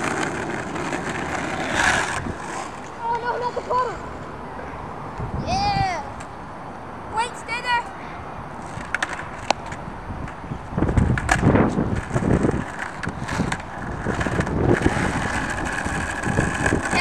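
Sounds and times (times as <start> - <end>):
skateboard clack: 0.0 - 4.3, 8.6 - 17.0
skateboard wheels rolling on asphalt: 0.0 - 17.0.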